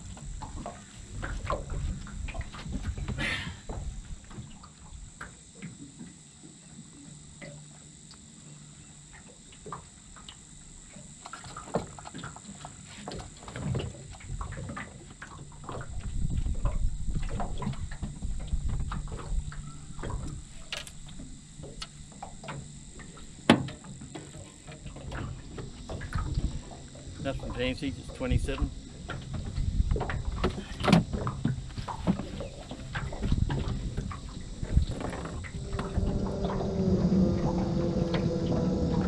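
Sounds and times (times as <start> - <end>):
low steady rumble: 12.3 - 39.0.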